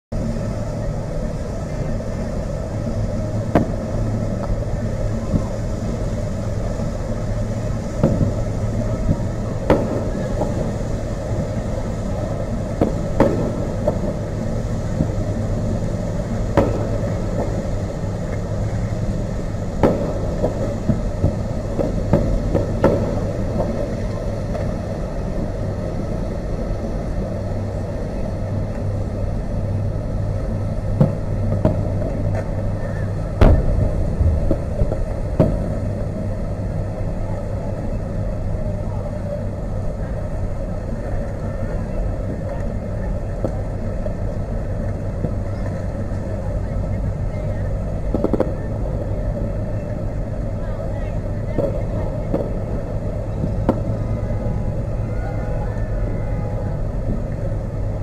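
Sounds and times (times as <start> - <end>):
steady low rumble: 0.1 - 58.0
distant fireworks bangs: 3.1 - 5.6, 7.8 - 24.8, 33.4 - 36.3, 48.1 - 48.8, 51.5 - 54.1.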